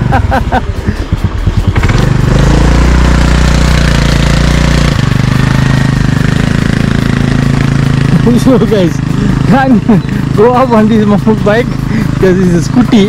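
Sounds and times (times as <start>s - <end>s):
scooter engine straining uphill: 0.0s - 13.0s.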